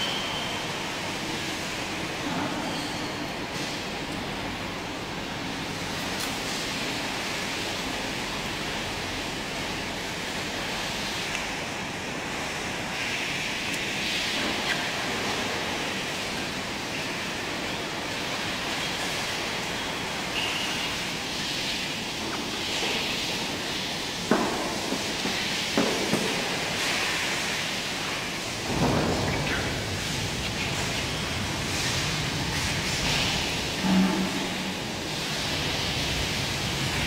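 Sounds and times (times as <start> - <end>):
market hall background noise: 0.0 - 37.0.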